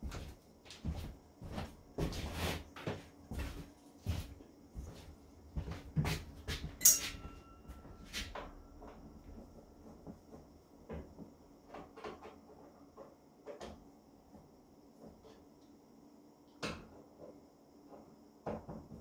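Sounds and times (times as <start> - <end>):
metallic clank ringing: 6.8 - 8.1.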